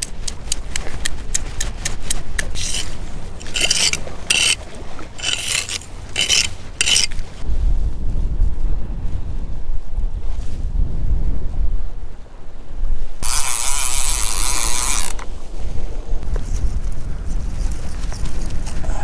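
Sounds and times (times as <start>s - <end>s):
wind buffeting microphone: 0.0s - 19.0s
metal scoop scraping concrete: 2.4s - 7.4s.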